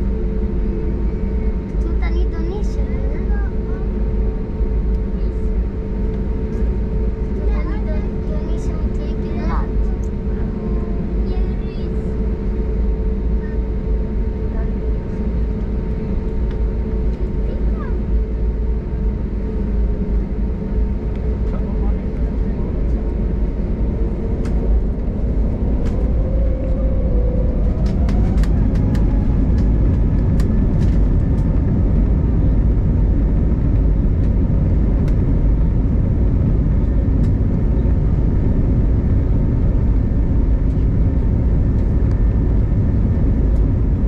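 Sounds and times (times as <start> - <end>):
jet engine rumble in cabin: 0.0 - 44.0.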